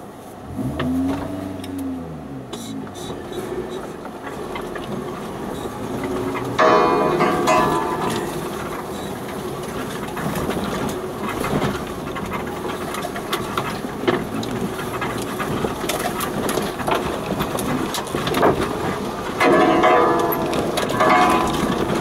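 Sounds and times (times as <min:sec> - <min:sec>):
off-road vehicle engine: 0:00.0 - 0:22.0
suspension knocks and clicks: 0:00.5 - 0:22.0
bell-like ringing: 0:06.6 - 0:09.2, 0:19.4 - 0:22.0.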